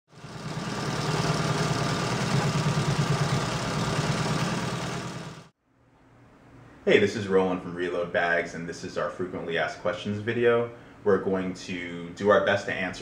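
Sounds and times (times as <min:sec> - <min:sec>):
industrial sewing machine running: 0:00.1 - 0:05.5.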